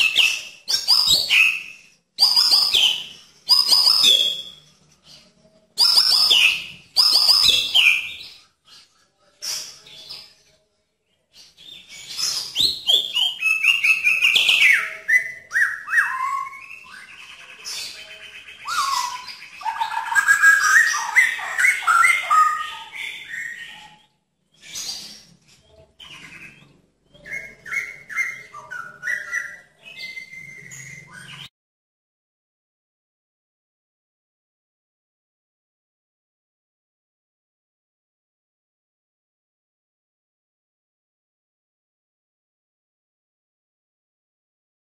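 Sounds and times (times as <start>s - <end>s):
bird singing whistled phrases: 0.0s - 4.7s, 5.8s - 8.4s, 11.8s - 24.0s, 24.6s - 31.5s.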